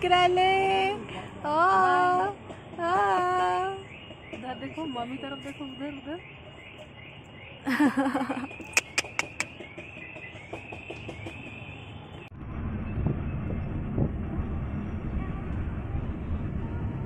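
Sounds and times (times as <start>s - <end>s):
high chirping: 3.8s - 11.9s
sharp clicks: 8.6s - 9.6s.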